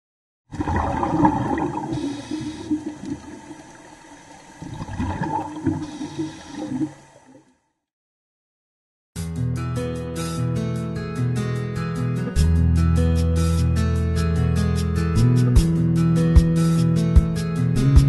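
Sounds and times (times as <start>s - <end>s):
underwater air bubbles gurgling: 0.5s - 7.5s.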